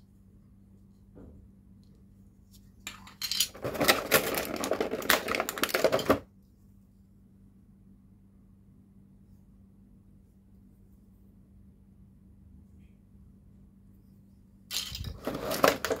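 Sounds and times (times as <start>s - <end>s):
plastic packaging tray crinkling: 3.5s - 6.2s, 15.0s - 16.0s.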